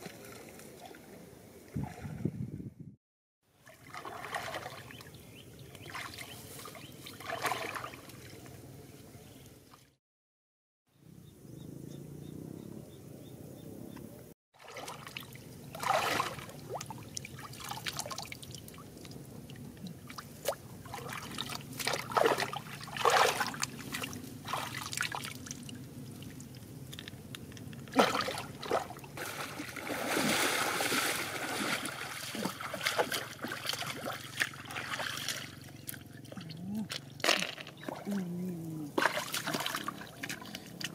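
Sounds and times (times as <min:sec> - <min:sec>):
shallow water splashing: 0:03.6 - 0:05.2, 0:05.8 - 0:08.5, 0:14.6 - 0:27.0, 0:27.9 - 0:40.9.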